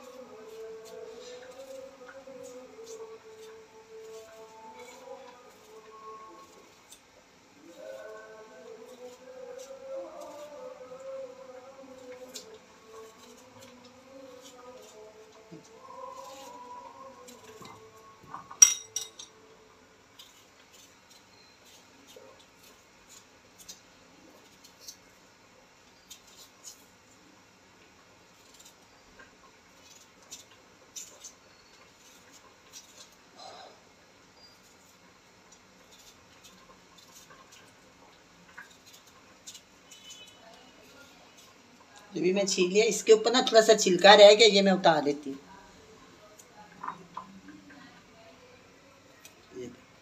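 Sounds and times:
knife scraping potato: 0.0s - 45.5s.

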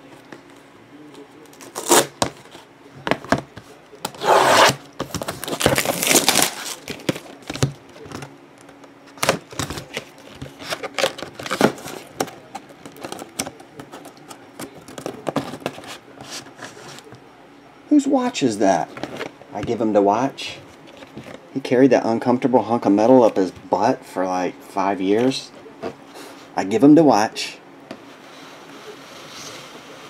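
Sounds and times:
cardboard scraping or tearing: 1.6s - 2.2s, 4.2s - 7.0s.

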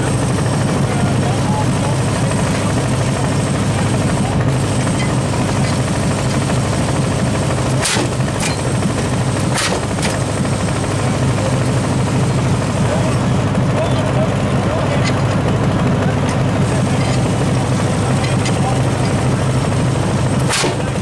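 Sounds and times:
rammer firing sharp cracks: 7.7s - 8.5s, 20.3s - 21.0s.

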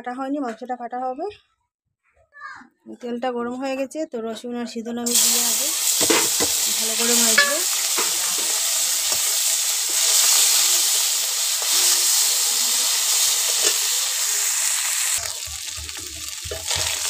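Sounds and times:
food sizzling in hot oil: 5.1s - 17.0s
metal spatula scraping pan: 6.0s - 12.4s, 13.0s - 14.3s, 15.1s - 17.0s.

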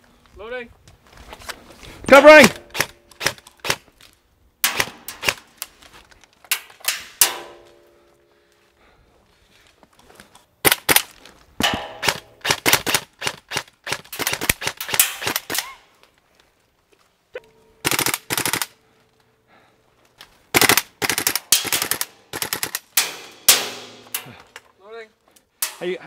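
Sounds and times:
airsoft rifles firing bursts: 10.6s - 15.6s, 17.8s - 18.8s, 20.5s - 24.1s.

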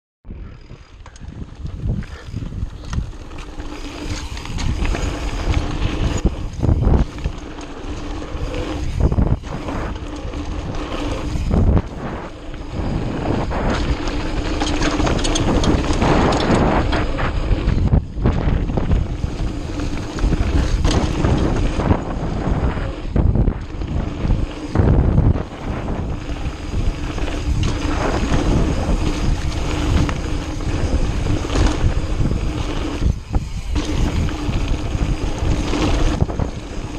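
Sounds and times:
bike rattling: 0.3s - 36.9s
wind buffeting microphone: 0.3s - 36.9s
bike knocking over bumps: 13.6s - 22.0s.

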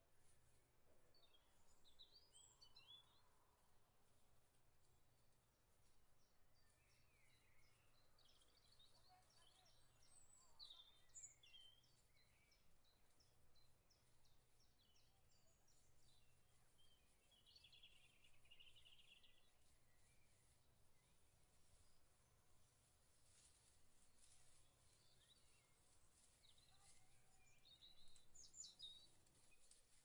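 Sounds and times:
faint bird chirps and calls: 6.2s - 22.5s, 24.2s - 30.0s.

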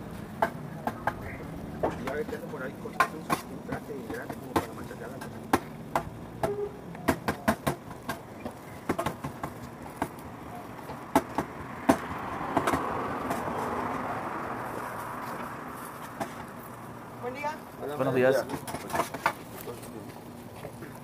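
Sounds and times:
vehicle passing: 8.6s - 20.0s.

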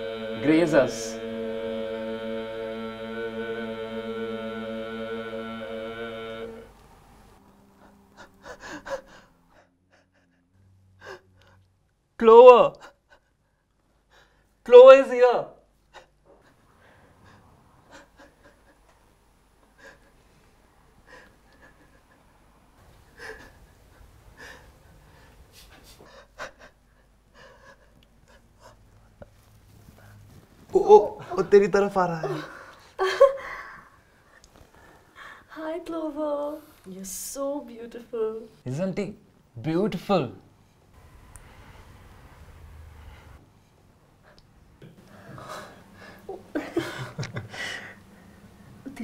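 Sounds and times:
chant-like droning hum: 0.0s - 9.7s.

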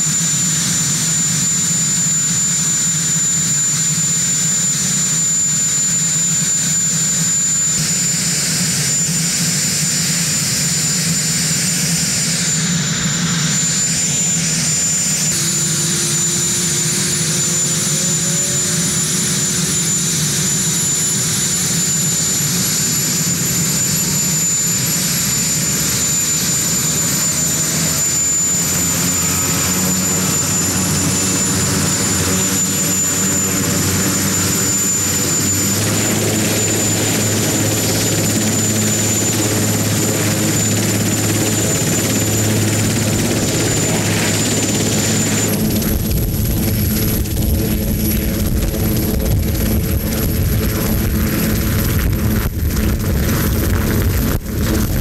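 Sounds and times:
helicopter turbine whine: 0.0s - 55.0s
engine whine rising in pitch: 8.8s - 55.0s
low hum: 28.0s - 55.0s.

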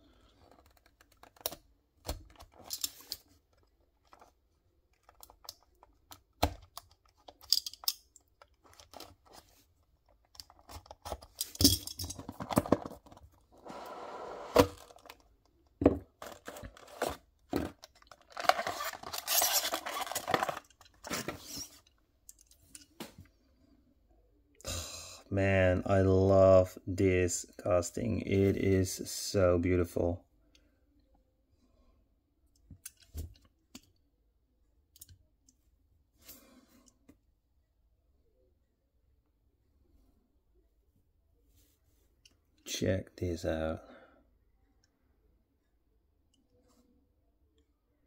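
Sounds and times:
packaging tearing and rustling: 16.2s - 21.7s.

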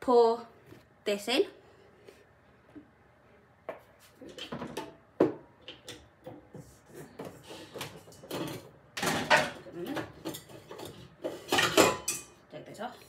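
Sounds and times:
kitchenware knocking and clinking: 8.0s - 12.4s.

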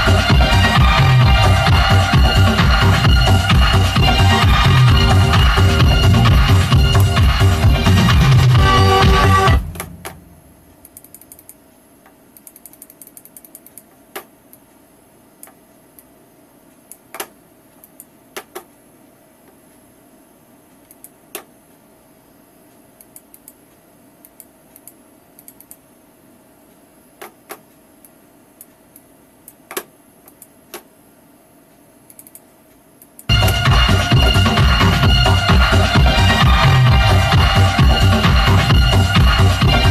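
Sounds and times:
loud disco music: 0.0s - 10.2s, 33.3s - 39.9s
computer mouse clicks: 10.8s - 14.7s, 15.4s - 16.1s, 16.8s - 18.8s, 20.8s - 21.6s, 23.0s - 25.9s, 27.2s - 30.9s, 32.0s - 33.3s.

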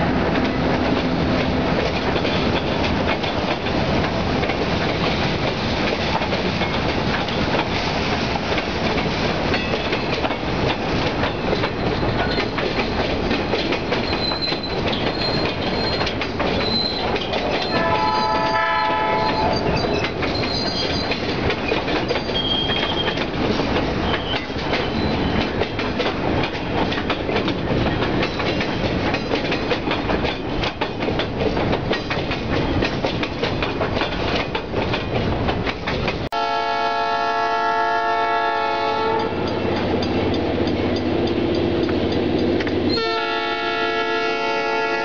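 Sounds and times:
train wheels clickety-clack: 0.0s - 45.0s
locomotive air horn blasts: 17.7s - 19.6s, 36.3s - 39.6s, 42.9s - 45.0s.

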